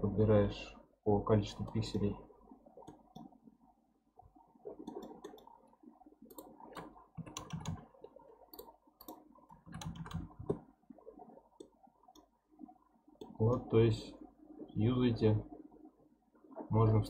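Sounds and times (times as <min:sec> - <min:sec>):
computer mouse clicks: 0:02.8 - 0:03.3, 0:04.8 - 0:05.5, 0:06.3 - 0:07.8, 0:08.5 - 0:10.6
keyboard clicks: 0:06.3 - 0:07.8, 0:08.5 - 0:10.6.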